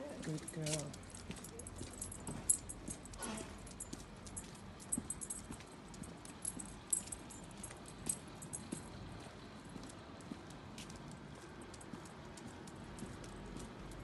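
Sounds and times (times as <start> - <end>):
footsteps on paving stones: 0.0 - 14.0
dog harness tags jingling: 0.2 - 9.0.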